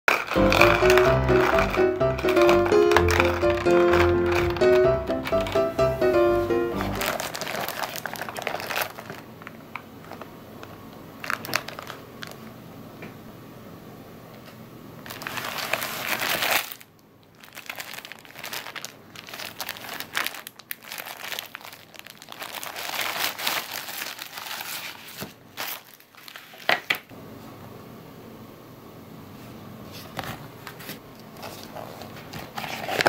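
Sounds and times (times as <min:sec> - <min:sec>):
card sheets rustling: 0:00.1 - 0:09.2, 0:30.0 - 0:33.0
plastic wrapper crinkling: 0:00.1 - 0:12.5, 0:15.0 - 0:27.0, 0:31.4 - 0:33.0.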